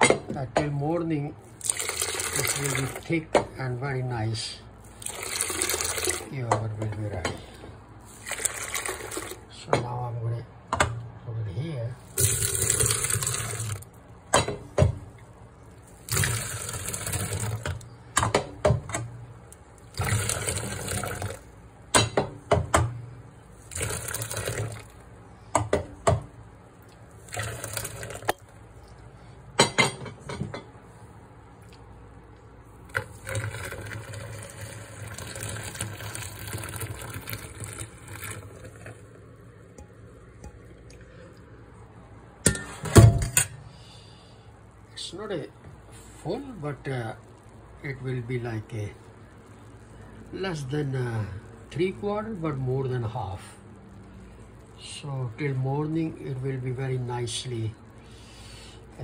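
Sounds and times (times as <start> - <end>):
milk pouring and splashing: 1.4 - 3.1, 4.8 - 6.6, 8.0 - 9.5, 12.0 - 14.1, 15.0 - 17.9, 19.4 - 21.6, 23.4 - 25.1, 26.8 - 29.0, 32.7 - 39.4.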